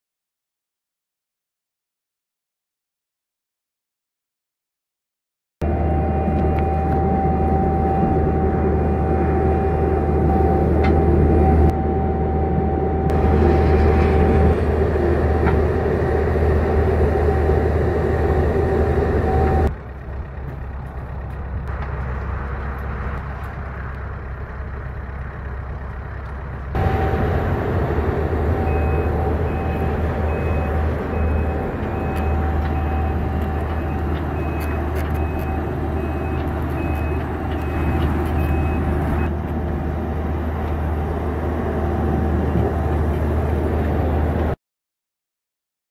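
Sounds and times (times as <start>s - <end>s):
back-up alarm beeping: 5.6s - 13.4s, 26.8s - 39.3s
steady whine: 5.6s - 24.7s, 26.2s - 44.6s
skid steer engine running: 5.6s - 44.6s.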